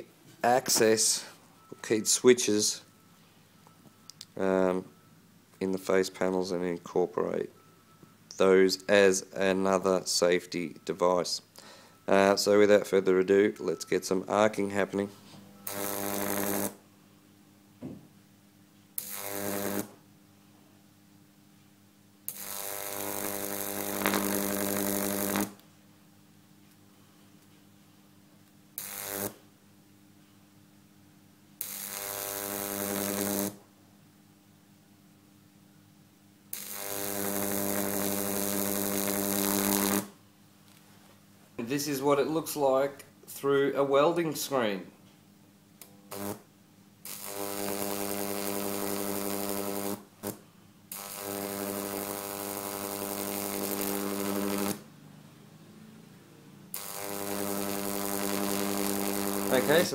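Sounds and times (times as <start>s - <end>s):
electric arc buzzing: 15.6s - 16.9s, 19.0s - 20.0s, 22.2s - 25.6s, 28.8s - 29.5s, 31.6s - 33.7s, 36.5s - 40.2s, 45.8s - 54.9s, 56.7s - 59.9s.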